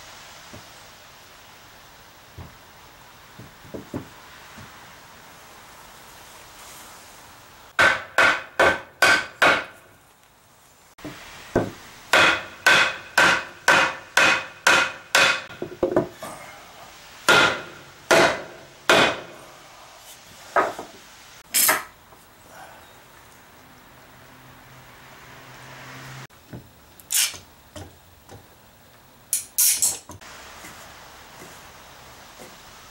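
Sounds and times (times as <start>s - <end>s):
hammer knocking on wood: 3.4s - 4.7s, 11.0s - 16.2s.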